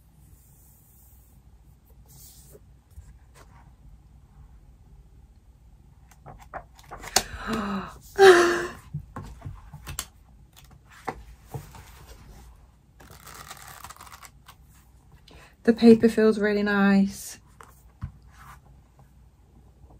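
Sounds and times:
paper pages rustling: 6.1s - 7.7s, 9.2s - 14.9s.

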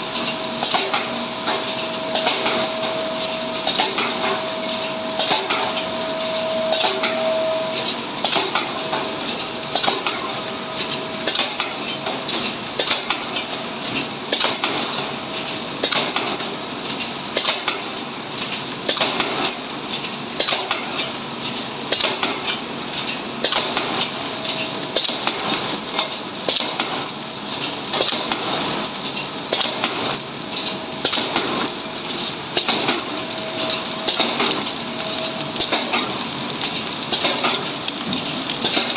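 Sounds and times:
packaging machine clacking: 0.1s - 38.9s.

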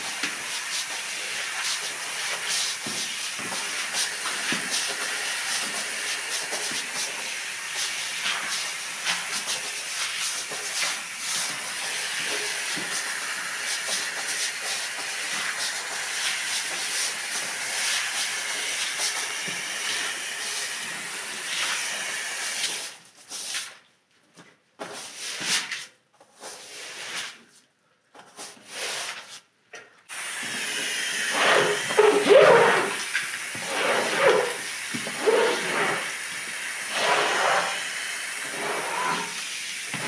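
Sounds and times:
stiff brush scrubbing rug: 0.0s - 22.0s, 30.4s - 40.0s
pressure washer jet hissing: 0.0s - 22.9s, 30.1s - 40.0s.

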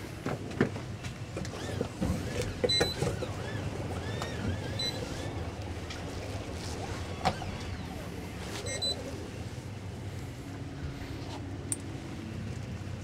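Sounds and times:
outboard engines idling: 0.0s - 13.0s
boat creaking and squeaking: 1.2s - 9.4s.

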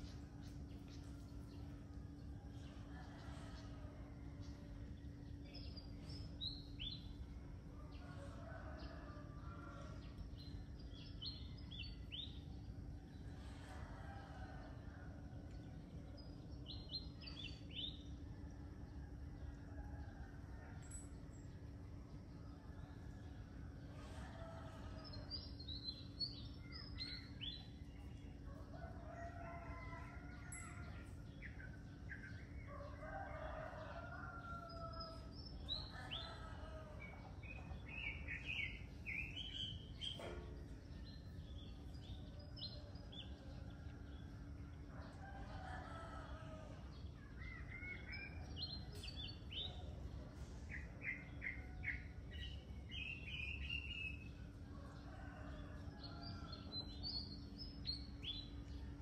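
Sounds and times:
songbirds chirping: 0.0s - 59.0s
rooster crowing: 24.0s - 25.5s, 26.4s - 31.2s, 32.2s - 40.2s, 44.9s - 49.0s, 54.7s - 58.4s.

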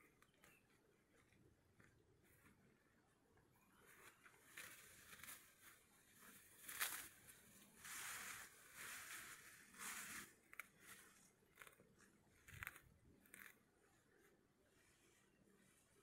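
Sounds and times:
rustling of rice stalks and grass: 3.7s - 11.8s
sharp crackle: 3.9s - 13.6s.

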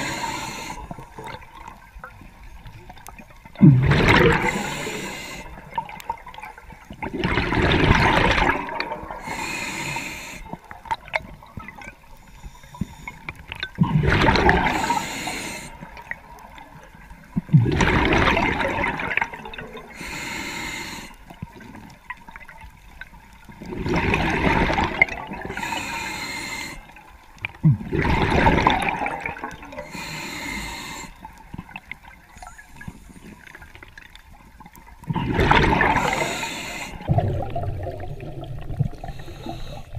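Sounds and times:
regulator inhalation hiss: 0.0s - 1.0s, 4.4s - 5.6s, 9.2s - 10.6s, 14.7s - 15.9s, 20.0s - 21.2s, 25.5s - 26.9s, 29.8s - 31.3s, 36.0s - 37.1s, 39.1s - 39.9s
exhaled bubbles bursting: 3.4s - 9.3s, 13.6s - 15.0s, 17.4s - 19.9s, 23.6s - 25.6s, 27.6s - 29.9s, 35.0s - 36.4s, 37.0s - 39.9s.

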